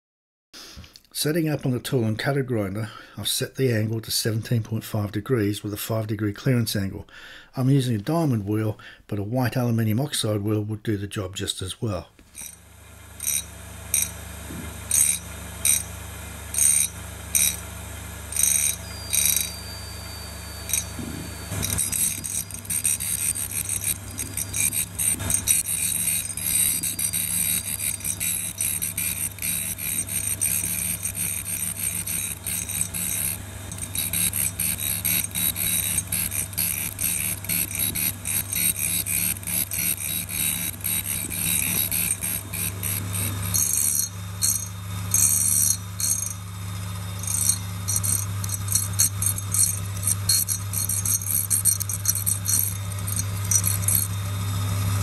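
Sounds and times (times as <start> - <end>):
grinder motor hum: 12.2 - 55.0
grinding wheel grinding tool bit: 12.2 - 55.0.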